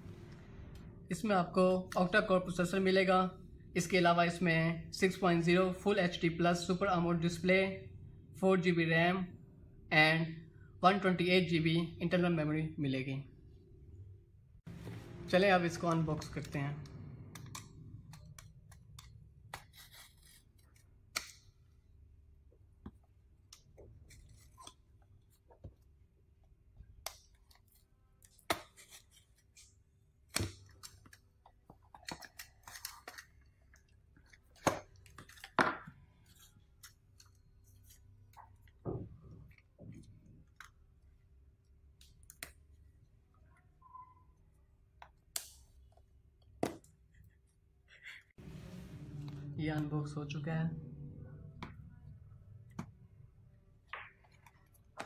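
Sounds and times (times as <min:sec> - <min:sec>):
faint steady hum: 0:48.4 - 0:53.9.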